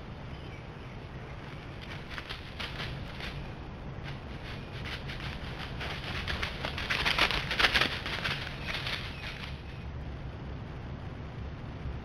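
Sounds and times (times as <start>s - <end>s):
deer hooves crunching dry leaves: 1.3s - 9.8s.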